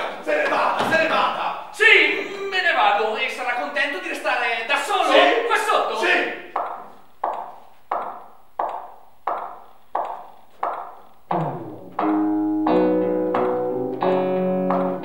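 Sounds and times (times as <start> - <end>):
dry knocking beat: 6.5 - 15.0
plucked guitar chords: 11.3 - 15.0.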